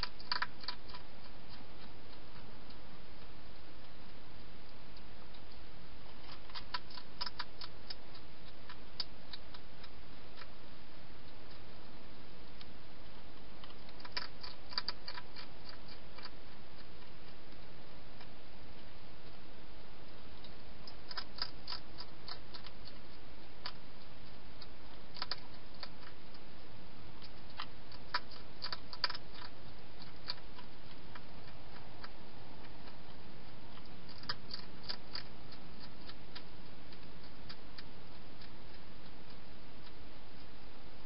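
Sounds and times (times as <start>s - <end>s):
steady hiss: 0.0s - 41.0s
hedgehog mouthing clicks: 13.6s - 16.4s.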